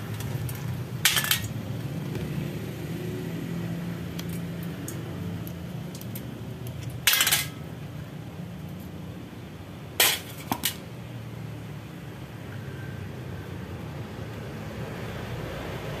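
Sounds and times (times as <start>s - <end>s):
metal parts clinking in a pan: 1.0s - 1.5s, 7.0s - 7.6s.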